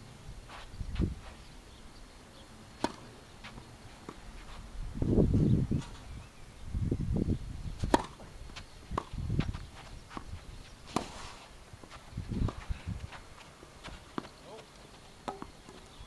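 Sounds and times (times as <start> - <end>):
tennis ball knocks: 2.8 - 3.1, 7.9 - 8.3.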